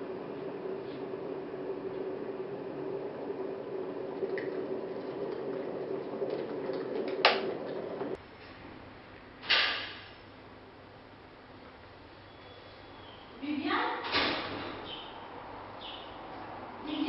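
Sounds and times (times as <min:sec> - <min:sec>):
kettle boiling hiss and hum: 0:00.0 - 0:08.3.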